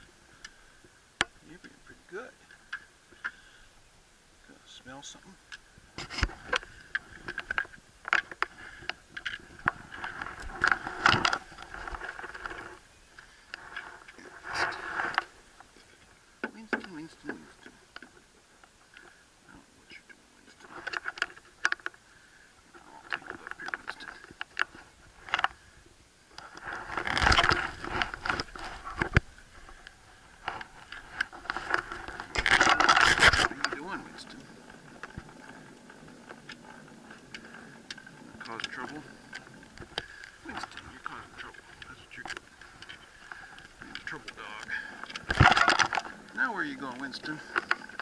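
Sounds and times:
fur rubbing near microphone: 0:13.6 - 0:15.2.

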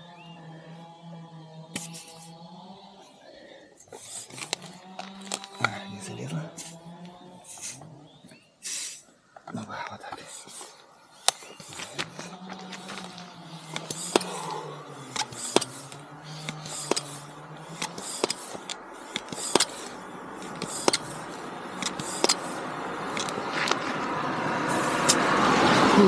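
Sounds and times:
passing vehicle: 0:00.0 - 0:26.0
tyre pump hissing strokes: 0:01.8 - 0:02.3, 0:03.9 - 0:05.6, 0:06.6 - 0:06.8, 0:07.5 - 0:07.8, 0:08.6 - 0:09.1, 0:10.2 - 0:23.8, 0:24.7 - 0:25.2.

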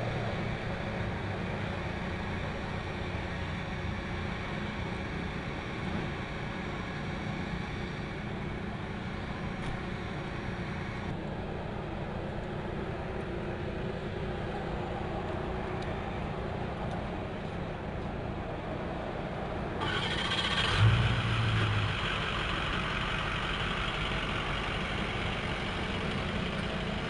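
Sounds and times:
aircraft engines running: 0:00.0 - 0:27.0
ground power equipment drone: 0:19.6 - 0:27.0.

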